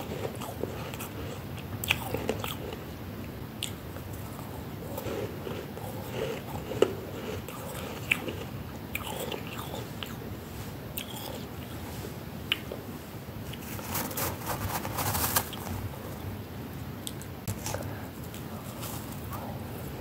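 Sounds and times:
frost crunching as chewed: 0.0s - 2.9s, 3.6s - 10.2s.

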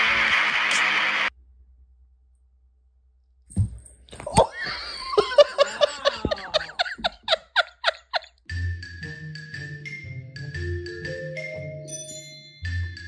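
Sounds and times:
person laughing: 4.3s - 8.4s.

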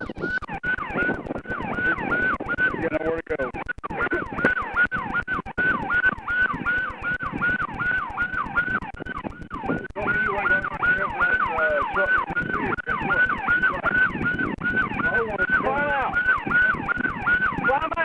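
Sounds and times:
police siren yelping: 0.0s - 18.0s.

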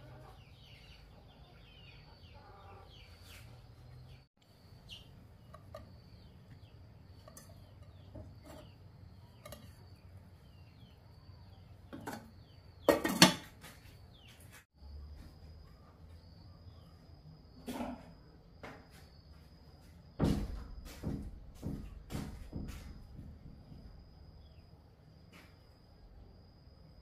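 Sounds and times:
birds chirping: 0.0s - 17.6s.

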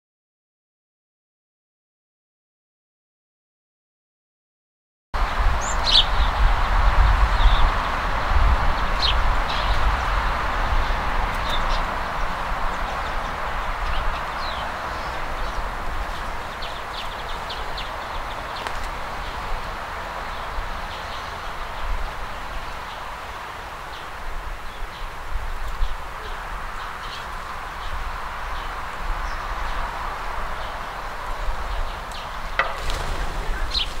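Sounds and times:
steady hiss and low rumble: 5.2s - 34.0s
sparrows chirping: 5.3s - 34.0s
birds flying off: 9.0s - 24.1s, 30.6s - 34.0s.

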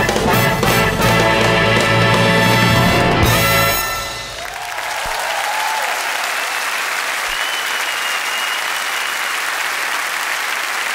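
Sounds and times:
audience applauding: 4.1s - 10.9s
long high whistle: 7.3s - 9.3s.

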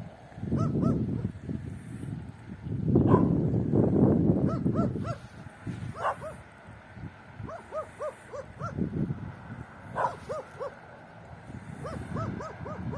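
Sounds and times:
dog barking: 0.6s - 1.3s, 3.1s - 3.4s, 4.5s - 5.2s, 5.9s - 6.4s, 7.5s - 8.8s, 9.9s - 10.8s, 11.8s - 12.9s.

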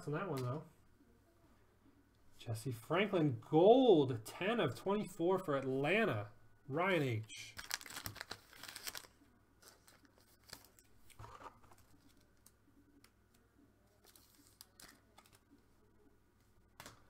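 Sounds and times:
packaging crinkle: 7.5s - 12.6s, 13.9s - 15.5s
trading cards handled: 7.6s - 15.6s.

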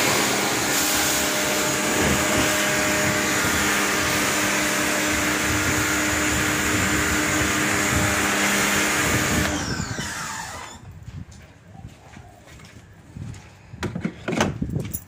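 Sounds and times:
water jet hissing on concrete: 0.0s - 9.5s
motor winding down whine: 0.0s - 10.9s
pressure washer motor hum: 0.0s - 10.9s.

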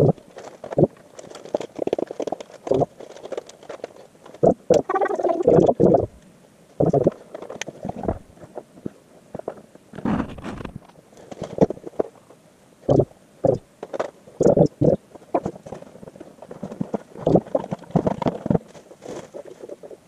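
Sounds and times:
plastic bags rustling: 0.0s - 5.1s, 10.0s - 12.2s, 15.1s - 20.0s.

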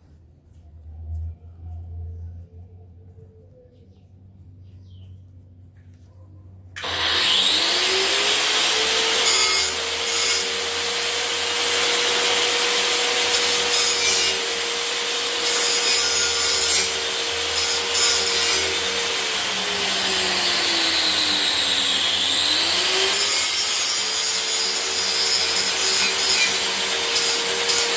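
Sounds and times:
electric motor whining: 6.8s - 9.2s.

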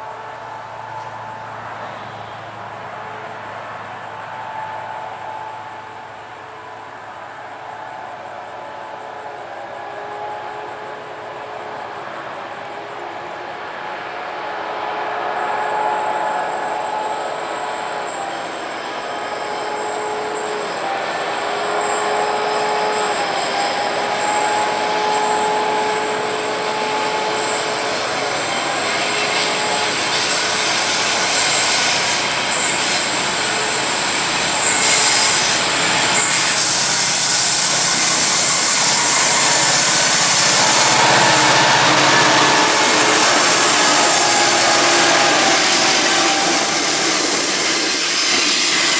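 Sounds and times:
diesel locomotives passing: 0.0s - 48.9s
wheels squealing on track: 13.8s - 48.9s.

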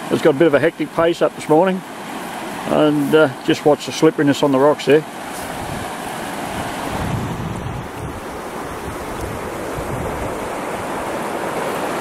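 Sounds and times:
floodwater rushing over rocks: 0.0s - 12.0s
wind buffeting microphone: 5.4s - 12.0s.

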